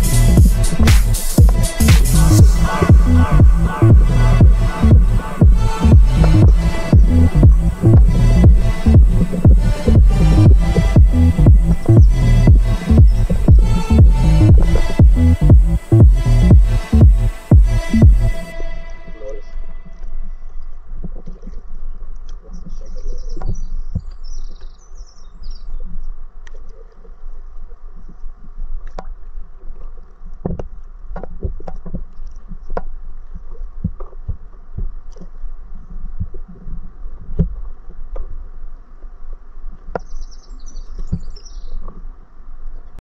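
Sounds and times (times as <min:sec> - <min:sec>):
bird chirping: 0:00.0 - 0:18.5, 0:22.5 - 0:25.9, 0:40.0 - 0:41.8
steady low rumble: 0:00.0 - 0:23.1
paddle splashing in water: 0:25.4 - 0:42.2.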